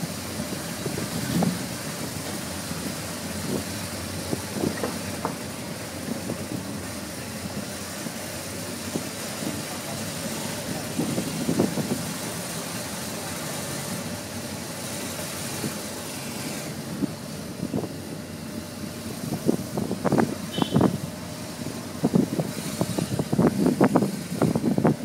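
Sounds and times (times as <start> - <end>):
engine and road noise in car: 0.0 - 25.0.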